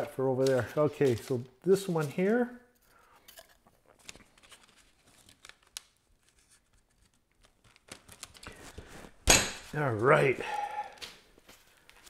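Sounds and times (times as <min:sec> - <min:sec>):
paper rustling: 0:00.3 - 0:02.4, 0:03.8 - 0:10.3.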